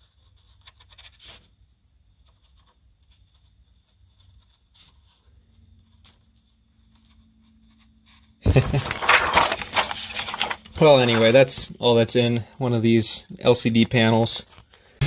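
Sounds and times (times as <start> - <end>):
plastic sheets crackling and ticking: 8.4 - 11.8.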